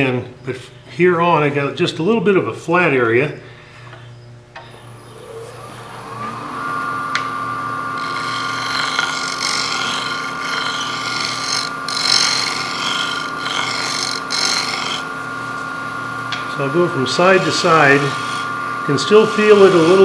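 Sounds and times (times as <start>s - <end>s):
lathe motor whine: 4.6s - 20.0s
tool scraping spinning wood: 7.9s - 15.8s, 16.5s - 20.0s.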